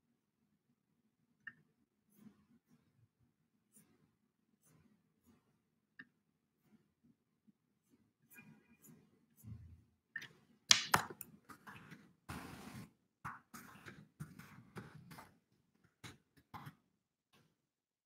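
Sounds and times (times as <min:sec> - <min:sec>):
desk handling clicks and taps: 0:10.7 - 0:11.2.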